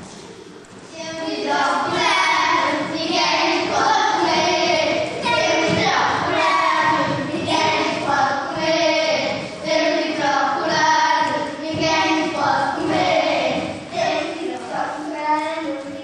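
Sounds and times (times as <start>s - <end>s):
choir singing held notes: 0.9s - 15.0s.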